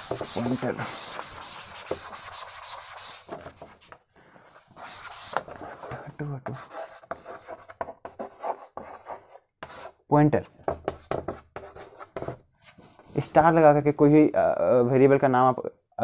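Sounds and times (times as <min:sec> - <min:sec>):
chalk scratching on board: 0:00.0 - 0:10.0, 0:10.7 - 0:13.1
duster wiping a chalkboard: 0:00.0 - 0:10.0.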